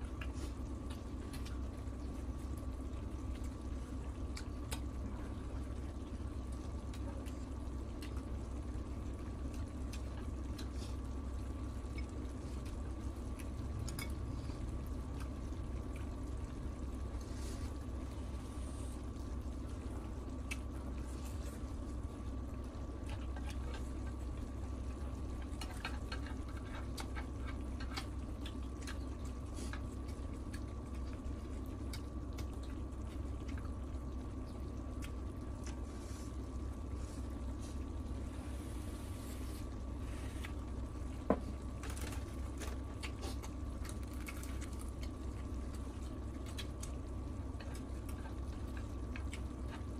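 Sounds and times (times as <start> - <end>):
eating sounds: 0.0 - 38.3, 39.6 - 49.9
steady low hum: 0.0 - 49.9
sauce simmering in a pan: 28.0 - 41.0.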